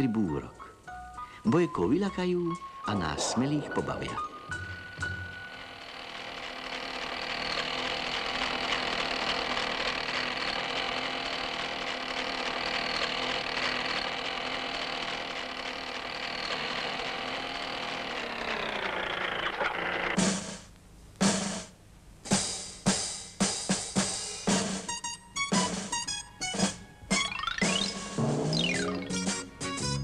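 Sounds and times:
electronic drone: 2.8 - 8.6.

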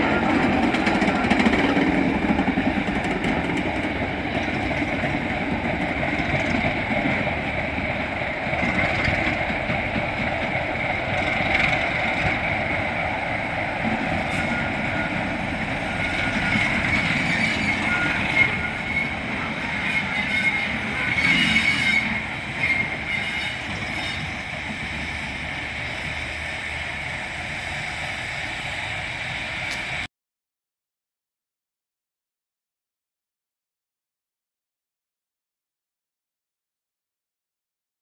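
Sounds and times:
diesel locomotive passing: 0.0 - 30.1.

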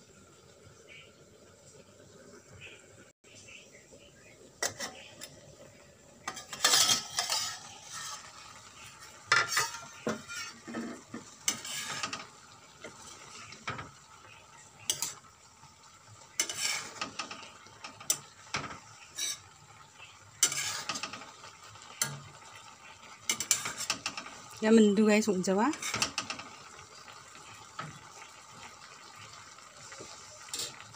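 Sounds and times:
food sizzling: 0.0 - 30.9
metal spoon scraping a wok: 4.6 - 5.4, 6.2 - 13.8, 14.8 - 15.3, 16.4 - 19.5, 20.4 - 22.4, 23.3 - 24.5, 25.7 - 26.5, 30.5 - 30.9.

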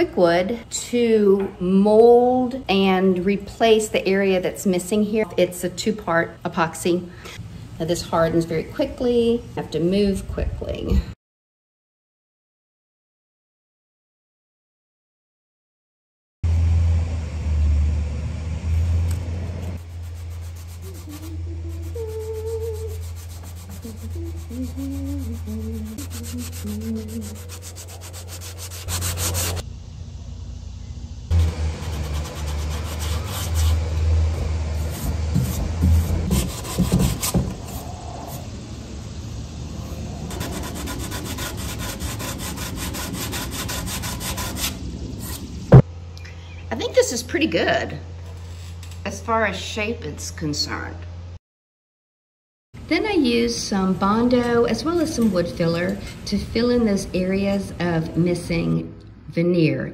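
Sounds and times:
steady low hum: 16.5 - 51.4
hand sanding wood putty: 19.8 - 29.6, 31.3 - 34.0, 34.8 - 37.8, 40.3 - 45.4.

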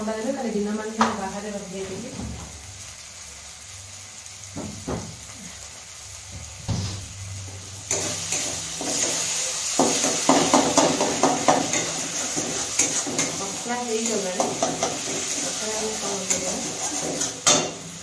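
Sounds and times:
food frying sizzle: 0.0 - 18.0
spatula scraping pan: 7.9 - 17.9.

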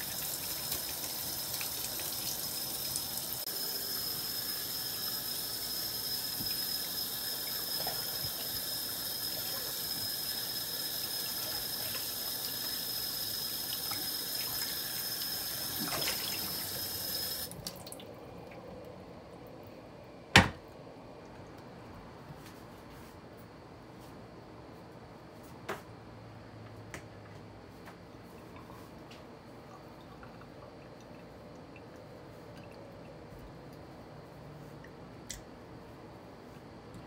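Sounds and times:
water running from tap: 0.0 - 18.1.

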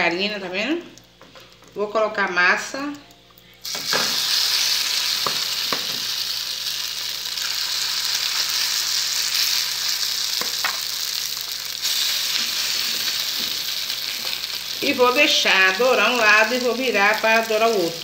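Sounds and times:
batter sizzling in a frying pan: 3.6 - 18.0.

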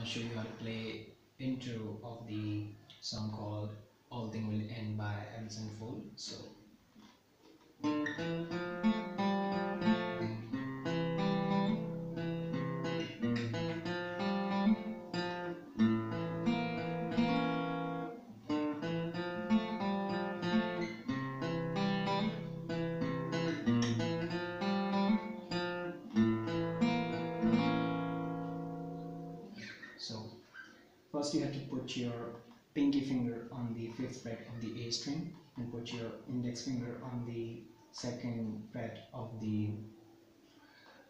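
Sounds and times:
acoustic guitar arpeggio: 7.8 - 30.0.

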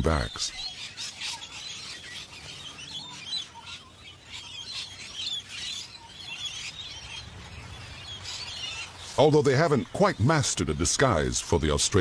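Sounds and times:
parrots chirping: 0.0 - 9.0.

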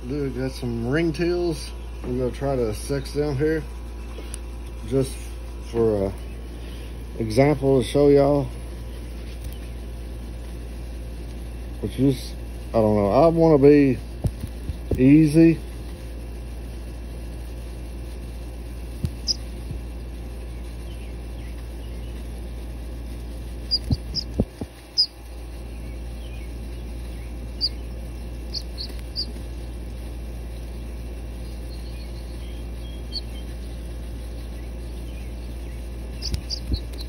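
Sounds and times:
steady low hum: 0.0 - 37.0
duckling peeping: 19.0 - 22.4, 23.4 - 37.0.

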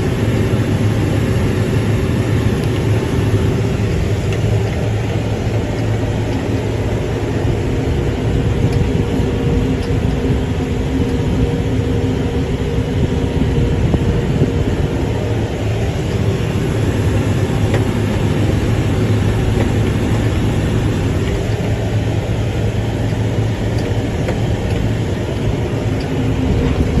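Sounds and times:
tractor engine running under load: 0.0 - 27.0.

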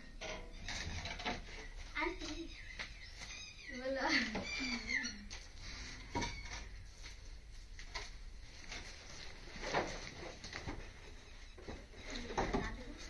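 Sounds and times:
rabbits rustling and tapping: 0.2 - 13.0.

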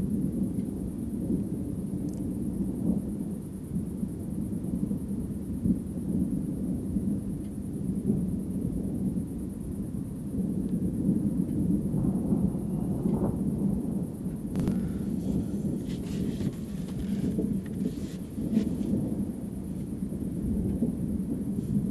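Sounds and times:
distant thunder rumbling: 11.8 - 21.9.

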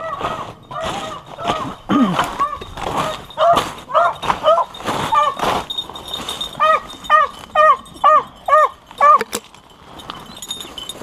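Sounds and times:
dog yelping: 0.0 - 5.4, 6.4 - 9.4.

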